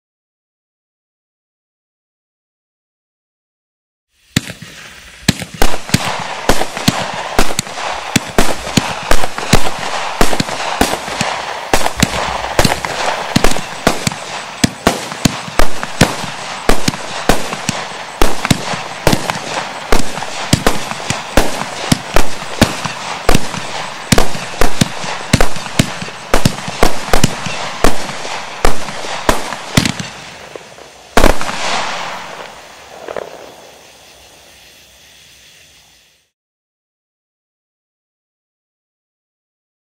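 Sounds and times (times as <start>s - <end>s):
firework hiss: 4.1s - 36.3s
firework shots: 4.2s - 34.5s.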